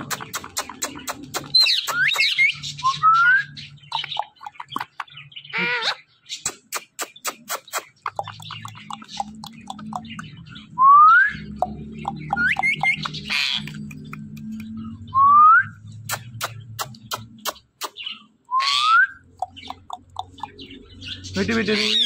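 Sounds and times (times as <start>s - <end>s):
sharp clicks: 0.0s - 2.3s, 6.4s - 10.4s, 11.6s - 14.8s, 16.0s - 18.1s, 19.3s - 20.7s
parakeet whistling and chirping: 0.1s - 4.9s, 7.3s - 22.0s.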